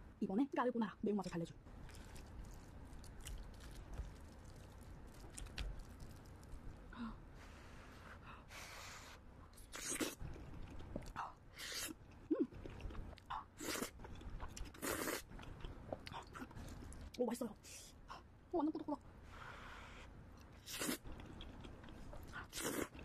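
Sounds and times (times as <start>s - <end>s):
slurping noodles: 14.8s - 15.3s.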